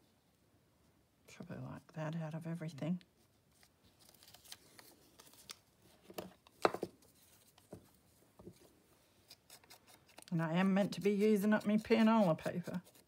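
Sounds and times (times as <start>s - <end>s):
paper rustling: 3.5s - 11.3s.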